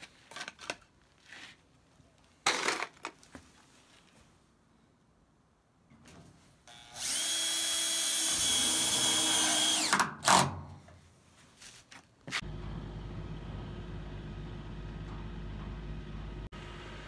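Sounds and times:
cordless drill whining: 0:06.7 - 0:10.4
low rumble: 0:12.4 - 0:17.0.

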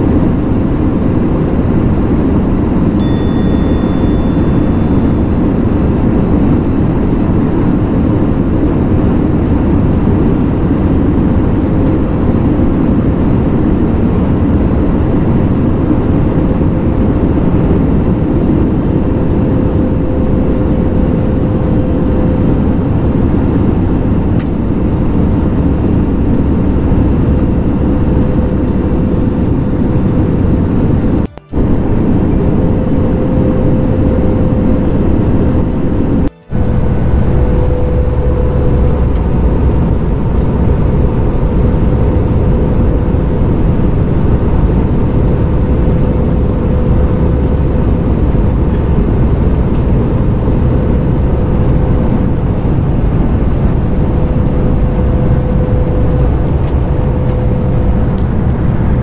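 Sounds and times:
airliner cabin roar: 0:00.0 - 0:59.0
faint steady hum: 0:00.0 - 0:59.0
short high ding: 0:03.0 - 0:06.0, 0:36.3 - 0:38.9.

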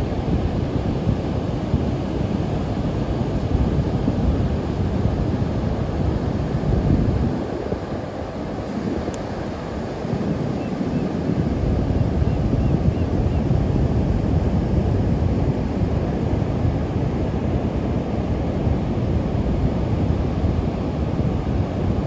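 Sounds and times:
wind on microphone: 0:00.0 - 0:22.0.

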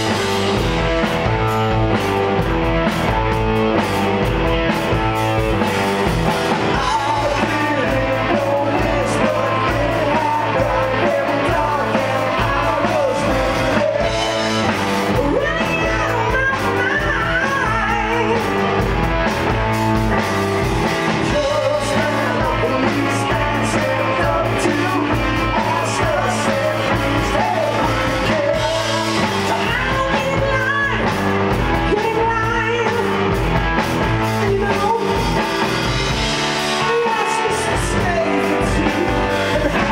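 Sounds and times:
drums: 0:00.0 - 0:39.9
electric guitar: 0:00.0 - 0:39.9
keyboard: 0:00.0 - 0:39.9
person singing: 0:06.0 - 0:18.9, 0:21.0 - 0:33.4, 0:34.2 - 0:39.9.

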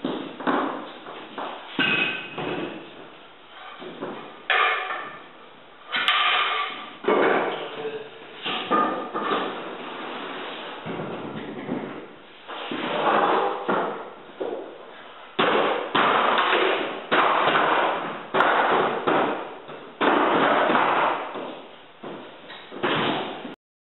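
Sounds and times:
wooden knocks and slams: 0:15.4 - 0:23.6.

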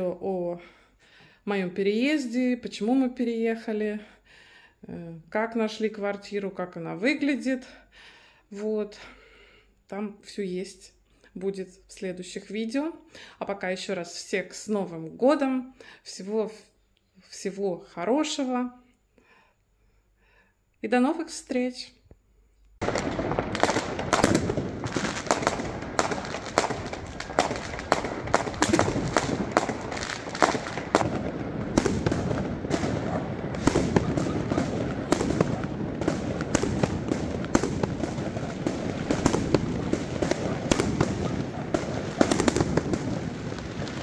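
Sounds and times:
fireworks bangs and crackles: 0:22.8 - 0:44.0.

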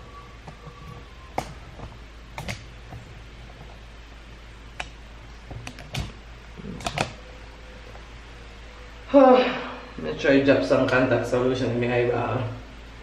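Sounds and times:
steady low hum: 0:00.0 - 0:13.0
sharp clicks and light taps: 0:04.8 - 0:06.2.

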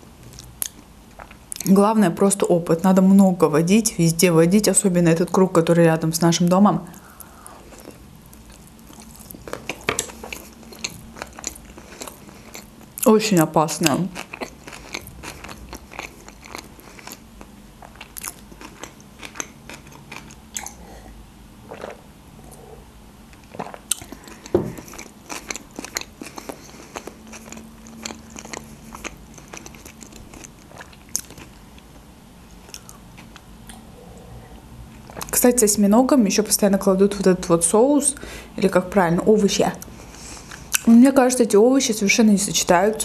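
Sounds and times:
chewing food: 0:06.9 - 0:13.1, 0:13.8 - 0:20.8, 0:23.3 - 0:31.9, 0:32.6 - 0:34.3, 0:34.9 - 0:35.4.

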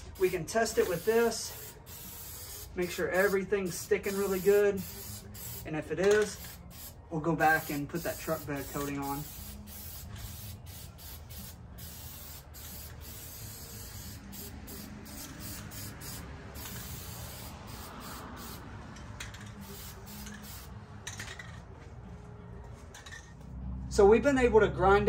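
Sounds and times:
aerosol spray can hissing: 0:00.2 - 0:18.6, 0:19.4 - 0:20.7.

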